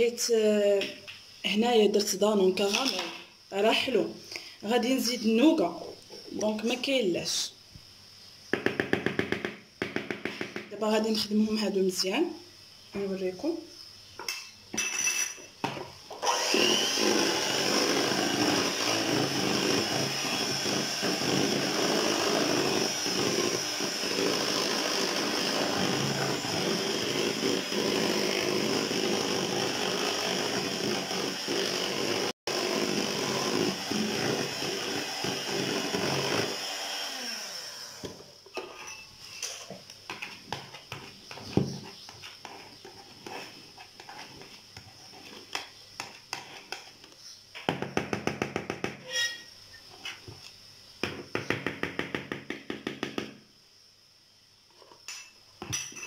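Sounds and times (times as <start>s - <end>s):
electric hand mixer running: 16.2s - 38.2s.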